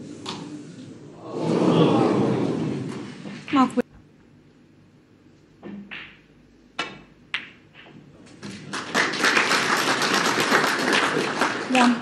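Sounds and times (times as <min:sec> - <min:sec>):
snooker balls clicking: 0:05.6 - 0:08.9
audience applause: 0:08.6 - 0:12.0.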